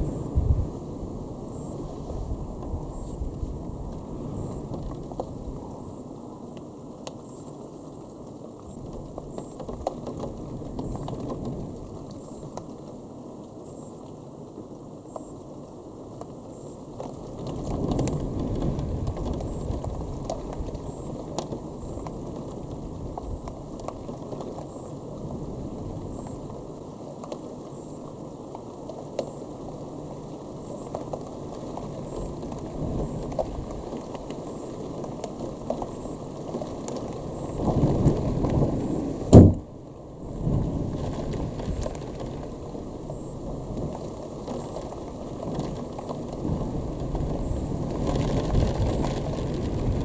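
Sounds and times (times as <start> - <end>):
thunder rumbling: 0.0 - 5.8, 37.0 - 50.0
rain hiss: 0.0 - 50.0
sharp loud knock: 39.3 - 39.6.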